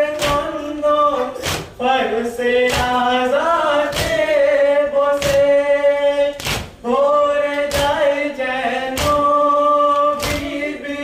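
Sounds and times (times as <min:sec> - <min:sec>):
men singing together: 0:00.0 - 0:11.0
rhythmic chest-beating strikes: 0:00.0 - 0:11.0.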